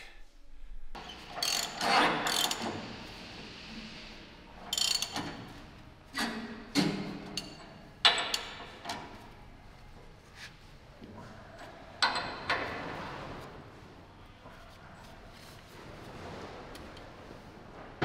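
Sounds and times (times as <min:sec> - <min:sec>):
chain hoist rattling and clinking: 0:01.3 - 0:02.7, 0:04.7 - 0:05.5.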